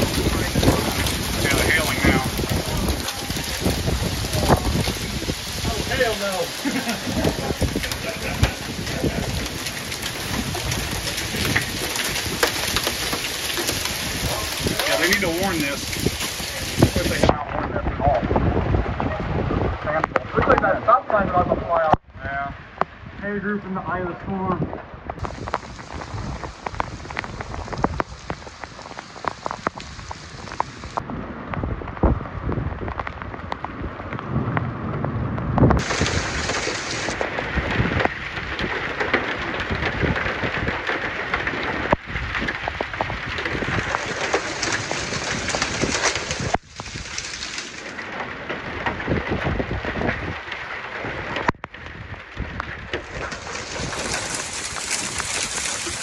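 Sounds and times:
hail striking cars and pavement: 0.0 - 17.3, 25.2 - 31.0, 35.6 - 56.0
gusting wind: 0.0 - 56.0
heavy rain: 0.0 - 56.0.

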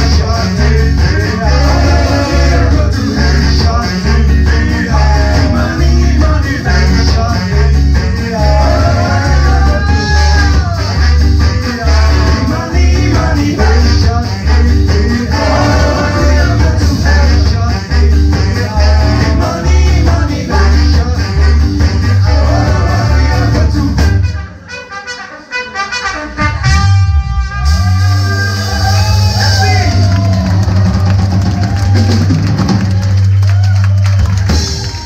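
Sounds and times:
person singing: 0.0 - 24.2
bass line: 0.0 - 24.7, 26.1 - 35.0
drums: 0.0 - 24.7, 26.0 - 35.0
brass horns: 0.0 - 33.2.

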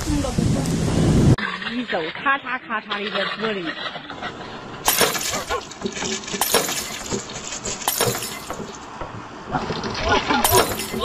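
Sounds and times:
glass cracking: 4.8 - 9.0, 9.6 - 11.0.

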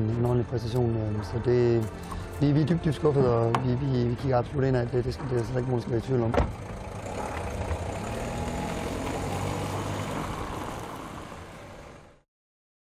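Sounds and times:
car engine driving off: 4.9 - 12.2.

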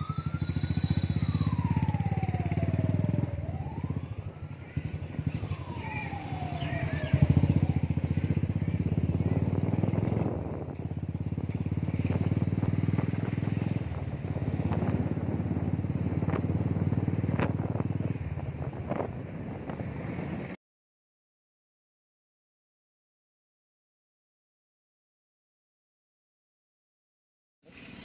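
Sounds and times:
motorcycle engine running: 0.0 - 20.5.

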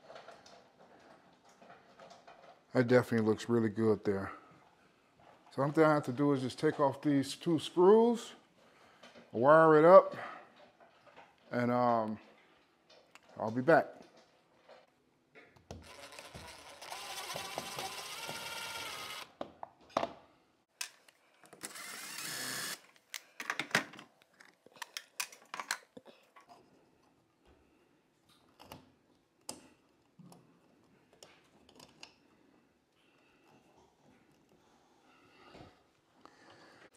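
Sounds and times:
cordless drill running: 15.8 - 19.3, 21.6 - 22.9.

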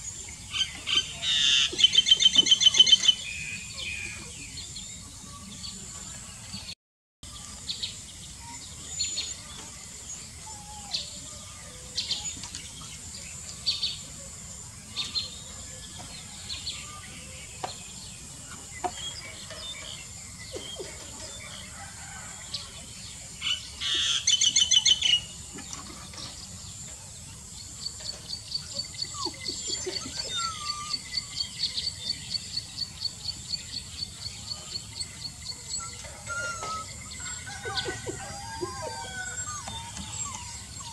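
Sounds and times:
birds chirping: 0.0 - 40.9
bird trilling: 35.7 - 40.9.

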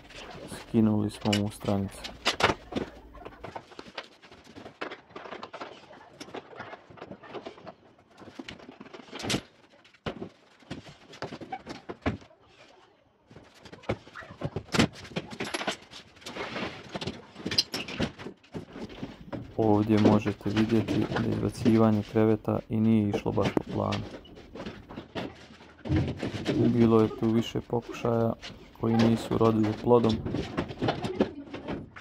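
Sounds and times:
knocks and clatter of furniture: 13.4 - 32.0.

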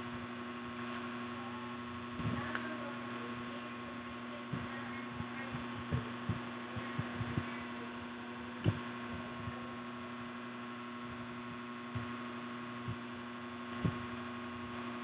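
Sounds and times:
electrical hum: 0.0 - 15.0
soft low thumps: 3.5 - 13.2, 13.8 - 14.2.

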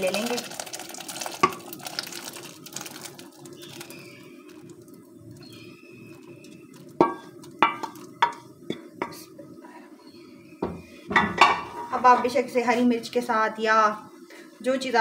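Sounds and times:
gravy pouring into bowl: 0.0 - 5.0
metal pot knocking on glass: 7.0 - 8.4.

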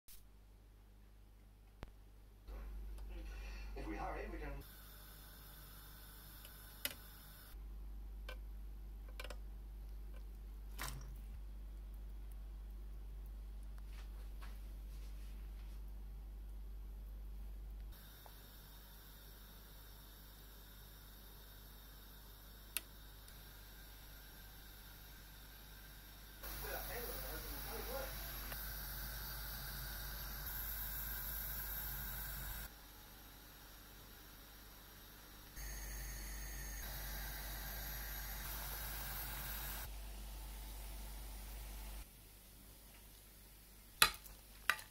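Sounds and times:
low steady hum: 0.2 - 44.9
gas stove hissing: 3.1 - 7.6, 17.9 - 43.6.

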